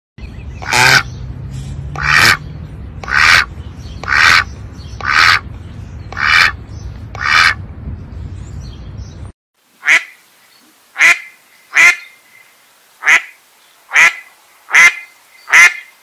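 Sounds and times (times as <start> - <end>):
duck quacking: 0.6 - 1.1, 1.9 - 2.4, 3.0 - 5.4, 6.1 - 6.6, 7.2 - 7.6, 9.8 - 10.2, 11.0 - 12.1, 13.0 - 13.3, 13.9 - 15.9.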